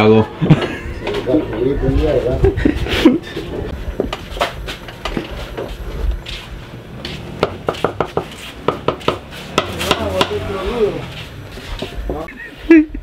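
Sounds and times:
utensils knocking and clinking: 7.4 - 10.4.

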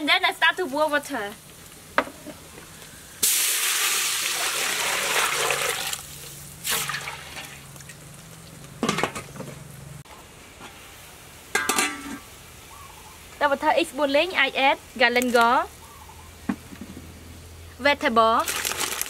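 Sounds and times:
water pouring into metal pot: 3.2 - 7.7, 18.4 - 19.0.

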